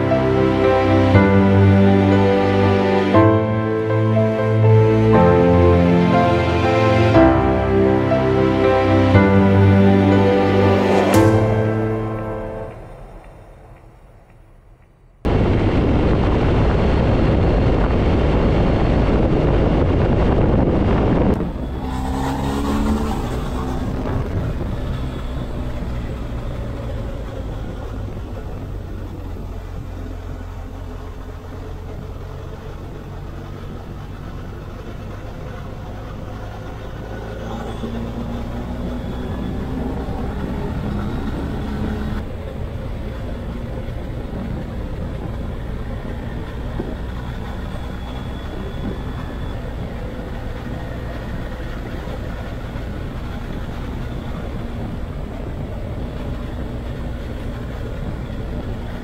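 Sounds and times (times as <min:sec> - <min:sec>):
wind rush over microphone: 0:15.3 - 0:26.0.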